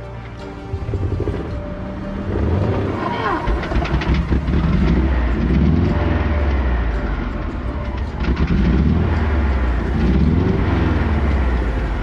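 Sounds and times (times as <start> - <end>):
kart engine revving: 0.5 - 12.0.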